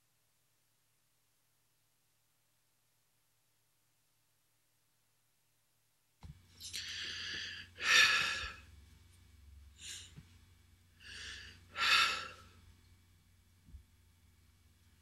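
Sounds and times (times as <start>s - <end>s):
steady low hum: 6.2s - 15.0s
person gasping heavily: 6.7s - 8.7s, 11.0s - 12.5s.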